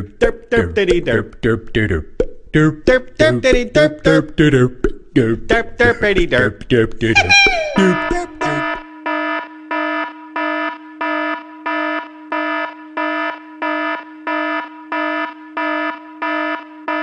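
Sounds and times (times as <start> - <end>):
buzzy electronic alarm tone pulsing: 7.1 - 17.0.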